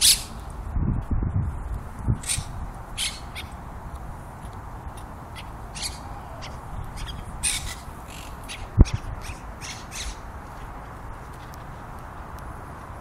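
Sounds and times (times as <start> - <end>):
parakeets squawking: 0.0 - 0.4, 2.2 - 3.6, 4.9 - 10.3.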